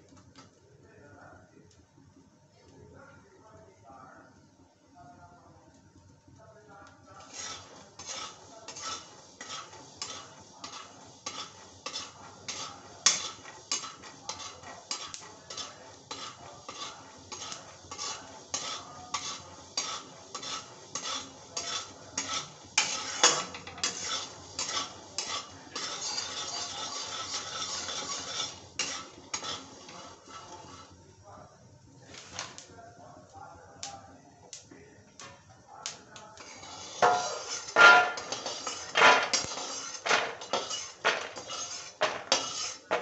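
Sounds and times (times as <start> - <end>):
peanuts rattling in a pan: 7.2 - 31.0, 35.3 - 43.0
steel spatula scraping metal pan: 7.2 - 31.0, 36.4 - 43.0.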